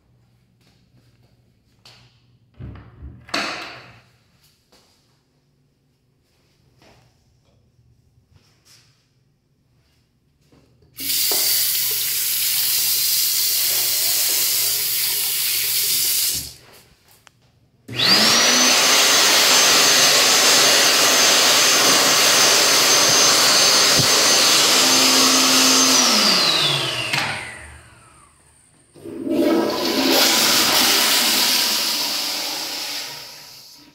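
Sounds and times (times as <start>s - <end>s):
faucet water running: 11.0s - 16.6s
hand dryer whine: 11.0s - 16.6s, 17.9s - 33.9s
toilet flushing: 11.0s - 16.7s, 28.8s - 33.9s.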